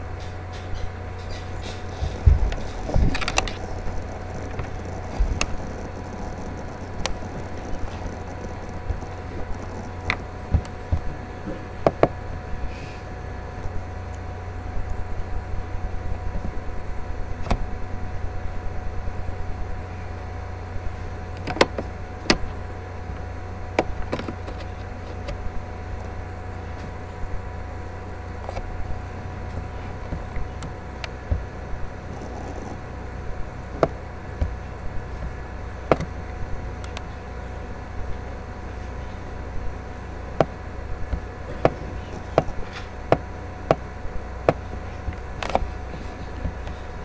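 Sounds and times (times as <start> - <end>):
low hum: 0.0 - 47.0
sharp ticks: 2.5 - 11.0.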